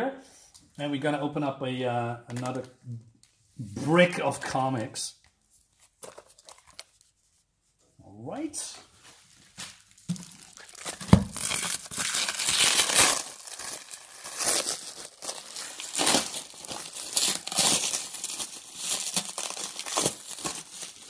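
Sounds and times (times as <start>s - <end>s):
packaging crinkling and tearing: 6.0s - 7.0s, 9.6s - 21.0s.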